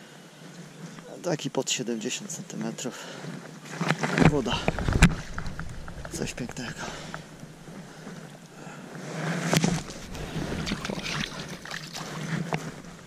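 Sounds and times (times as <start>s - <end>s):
water splashing and sloshing: 9.4s - 13.0s
water dripping: 9.8s - 13.0s.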